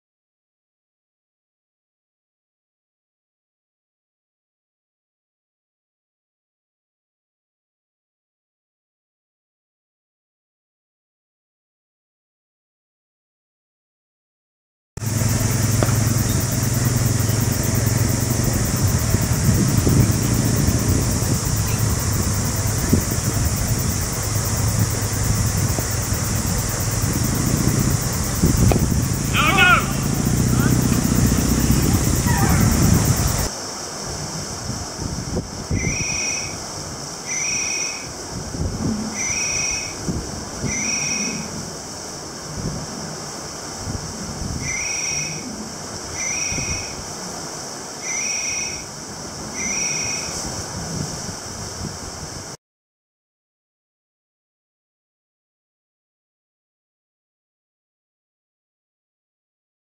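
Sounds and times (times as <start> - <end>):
low engine-like drone: 15.0 - 33.5
steady high hiss: 15.0 - 52.6
wind and sea noise: 15.0 - 52.6.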